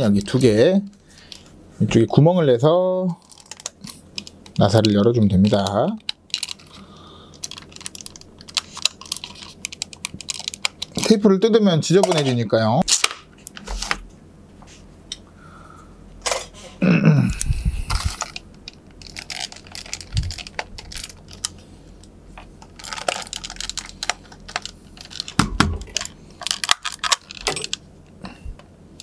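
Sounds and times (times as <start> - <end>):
screwdriver bits rattling in case: 17.9 - 21.5, 22.8 - 27.8.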